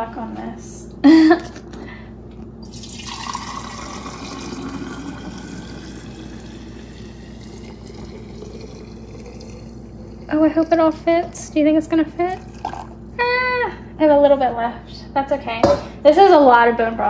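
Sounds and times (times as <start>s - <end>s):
liquid pouring into glass jar: 2.6s - 13.2s.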